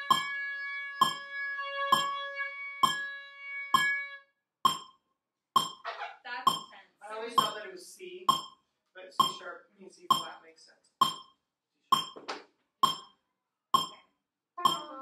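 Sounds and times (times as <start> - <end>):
metronome clicking: 0.0 - 0.3, 1.0 - 1.2, 1.9 - 2.2, 2.8 - 3.0, 4.7 - 4.9, 5.6 - 5.8, 6.5 - 6.7, 7.4 - 7.6, 8.3 - 8.5, 9.2 - 9.4, 10.1 - 10.3, 11.0 - 11.2, 12.0 - 12.2, 12.8 - 13.1, 13.8 - 14.0, 14.6 - 15.0
oboes holding long notes: 0.0 - 3.4.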